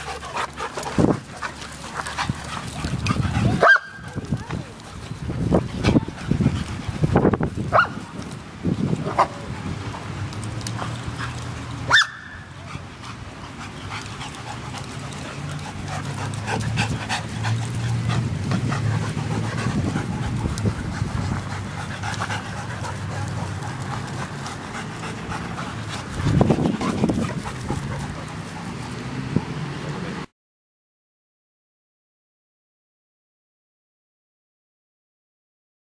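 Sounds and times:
dog panting: 0:00.0 - 0:04.4, 0:05.2 - 0:07.4, 0:12.5 - 0:29.1.

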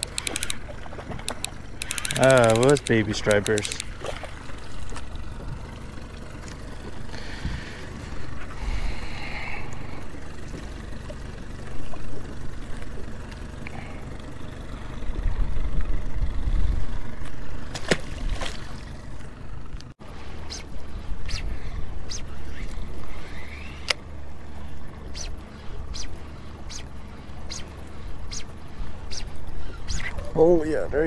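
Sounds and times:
sharp clicks: 0:00.0 - 0:04.0
boat motor rumble: 0:00.0 - 0:31.0
water and wind noise: 0:00.0 - 0:31.0.

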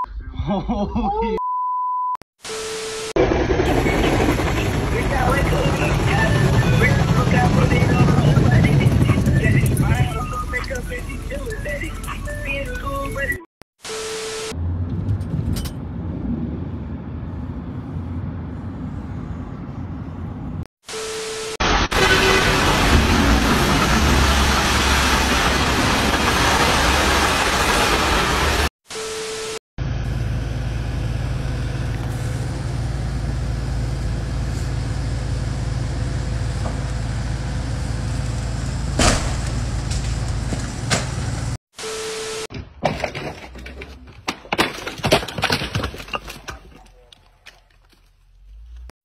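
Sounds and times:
car road and engine rumble: 0:14.6 - 0:20.7, 0:29.8 - 0:41.6, 0:47.0 - 0:49.0.

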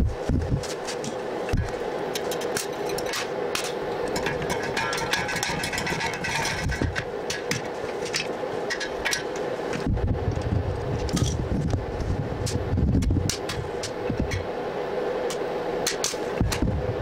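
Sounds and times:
steady hum: 0:00.0 - 0:17.0
low rumble: 0:09.8 - 0:14.5.

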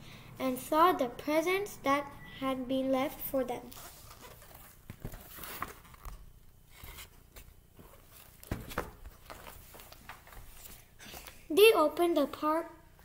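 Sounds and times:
book pages rustling: 0:03.6 - 0:11.3
soft knocks and clicks of book: 0:04.9 - 0:06.2.

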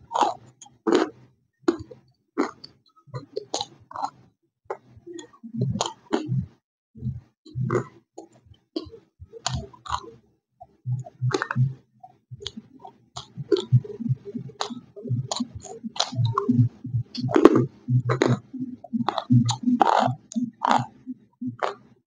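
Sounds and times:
low chewing thuds: 0:07.5 - 0:21.9.

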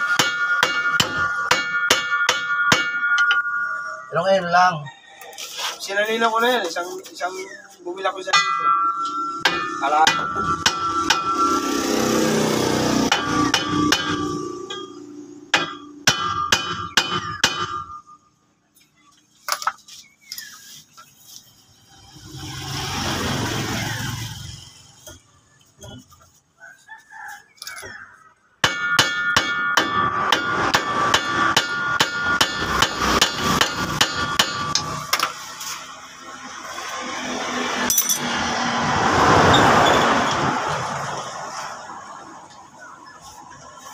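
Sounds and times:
hammer striking metal: 0:00.0 - 0:03.9, 0:08.2 - 0:18.2, 0:28.6 - 0:35.4, 0:37.8 - 0:38.5.

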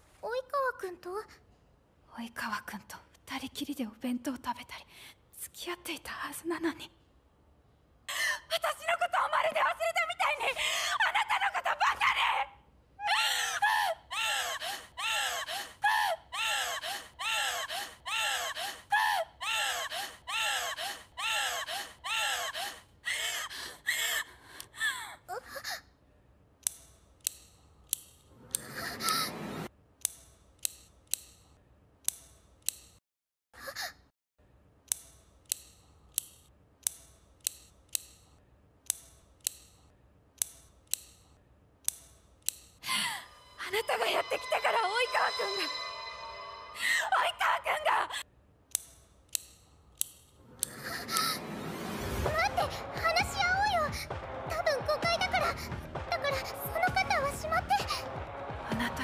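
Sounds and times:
girl crying out hysterically: 0:13.0 - 0:23.2
box cutter blade ratcheting clicks: 0:26.6 - 0:28.7, 0:30.0 - 0:33.0, 0:34.8 - 0:42.8, 0:48.7 - 0:50.8.

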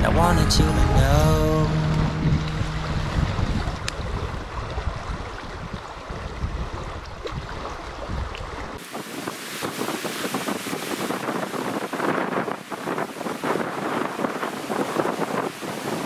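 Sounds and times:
river water rushing: 0:00.0 - 0:16.0
wind buffeting microphone: 0:00.0 - 0:16.0.

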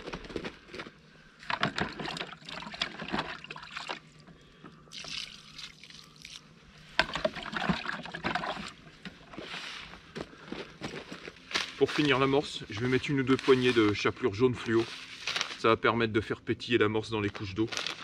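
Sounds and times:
hands mixing wet groundbait: 0:01.4 - 0:09.9.

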